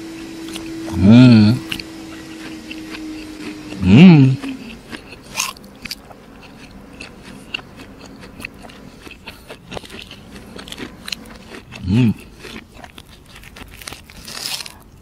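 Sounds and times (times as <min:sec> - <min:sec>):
person humming: 0:00.0 - 0:05.1, 0:11.8 - 0:12.3
chewing and crunching food: 0:00.0 - 0:15.0.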